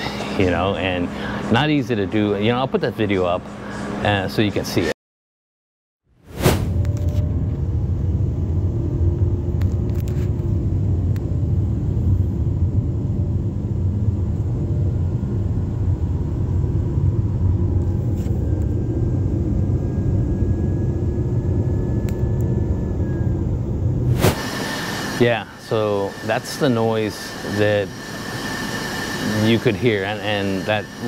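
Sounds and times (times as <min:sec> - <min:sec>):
faint high whine: 0:06.4 - 0:31.0
road and engine rumble: 0:06.4 - 0:31.0.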